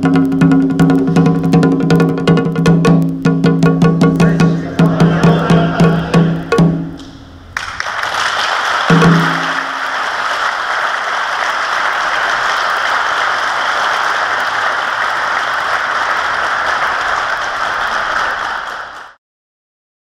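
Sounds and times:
crowd applause: 0:04.2 - 0:19.2.

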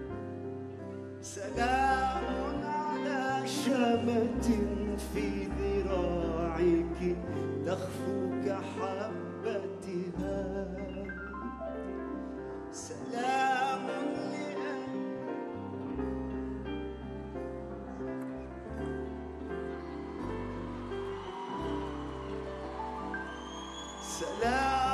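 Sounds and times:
piano and keyboard accompaniment: 0:00.0 - 0:24.9
man singing: 0:01.2 - 0:16.0, 0:24.0 - 0:24.9.

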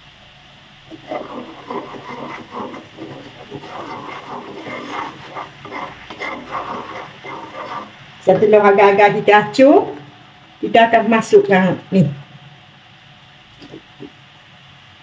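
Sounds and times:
sugar syrup bubbling: 0:00.8 - 0:08.2
spatula scraping a wok: 0:00.9 - 0:08.0.

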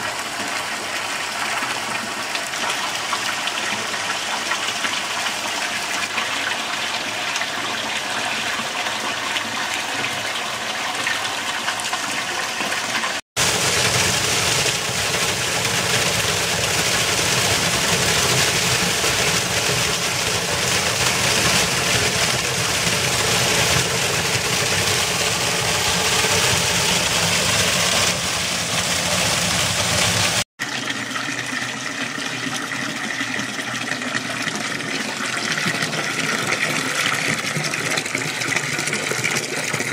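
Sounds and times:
fountain stream splashing into basin: 0:00.0 - 0:39.9
pipe pouring into pool: 0:00.0 - 0:39.9
small waterfall rushing over rock: 0:11.4 - 0:30.5.

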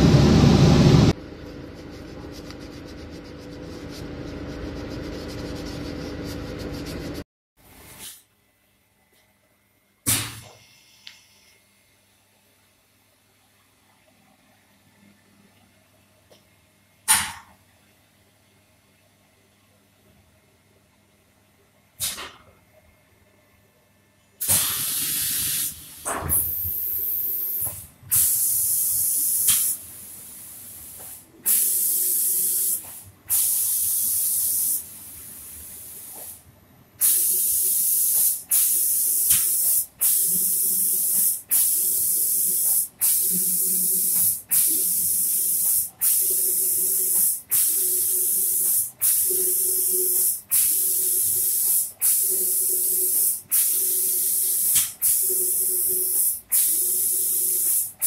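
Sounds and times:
spray gun hissing in bursts: 0:24.4 - 0:36.4, 0:37.0 - 0:58.0.

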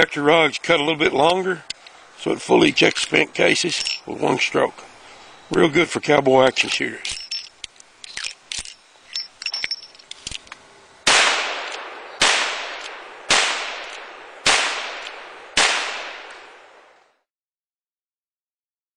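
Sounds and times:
gunshots with long echo: 0:11.1 - 0:17.1.

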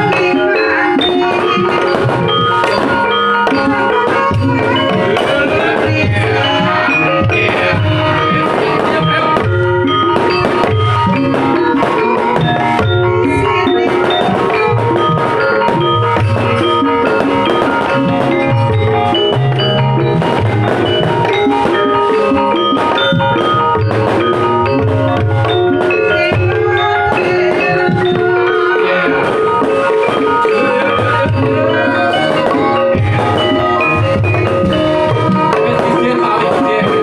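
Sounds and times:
bronze metallophones ringing: 0:00.0 - 0:37.0
deep drum beats: 0:00.0 - 0:37.0
hand drum struck: 0:00.0 - 0:37.0.

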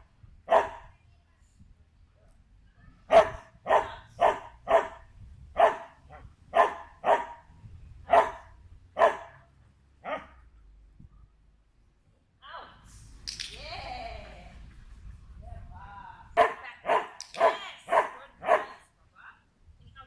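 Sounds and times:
dog barking: 0:00.5 - 0:00.9, 0:03.1 - 0:05.0, 0:05.6 - 0:07.5, 0:08.1 - 0:09.4, 0:10.0 - 0:10.4, 0:16.4 - 0:18.8.

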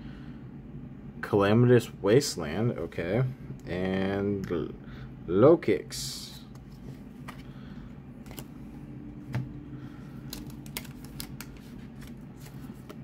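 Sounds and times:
cards clicking and tapping: 0:08.2 - 0:08.5, 0:10.3 - 0:13.0.

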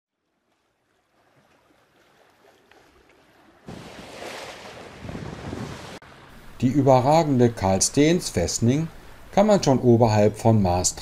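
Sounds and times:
water rushing past hull: 0:00.1 - 0:09.8
wind rushing: 0:04.8 - 0:06.0.

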